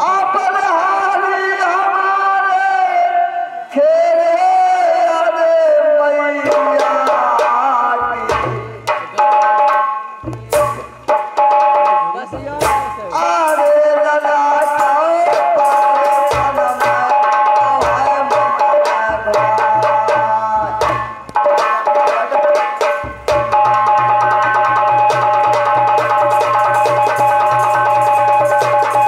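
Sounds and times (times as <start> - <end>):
hand drum beats: 6.4 - 13.8, 14.6 - 29.0.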